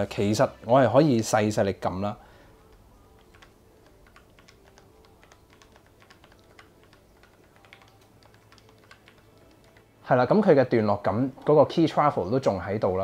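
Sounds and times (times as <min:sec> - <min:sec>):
soft keyboard typing clicks: 0:02.6 - 0:09.9.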